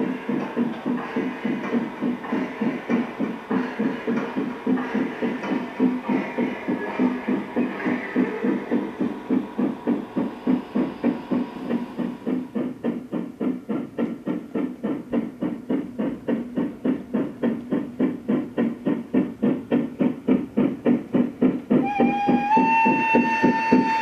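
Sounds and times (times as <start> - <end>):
model steam locomotive chuffing: 0.0 - 24.0
steam whistle: 21.8 - 24.0.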